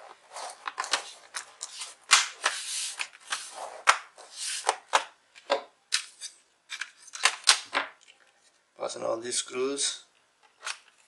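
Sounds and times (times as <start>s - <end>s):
plastic scraping on plastic: 0.0s - 5.1s.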